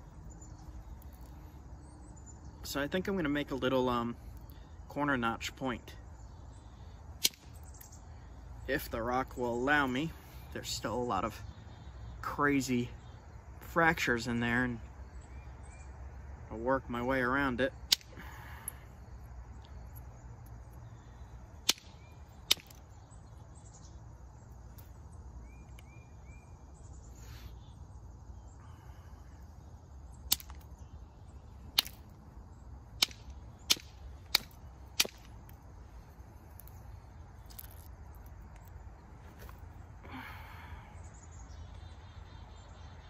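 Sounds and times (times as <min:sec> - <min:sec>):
flint flakes snapping: 0:07.2 - 0:07.9, 0:17.9 - 0:18.8, 0:21.6 - 0:22.8, 0:30.2 - 0:30.8, 0:31.7 - 0:32.2, 0:33.0 - 0:35.6, 0:36.4 - 0:38.8.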